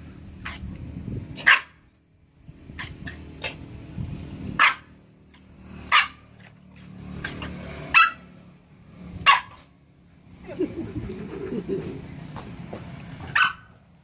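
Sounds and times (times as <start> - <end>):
dog barking: 1.4 - 1.8, 4.6 - 4.9, 5.9 - 6.2, 7.2 - 8.2, 9.2 - 9.7, 13.3 - 13.7.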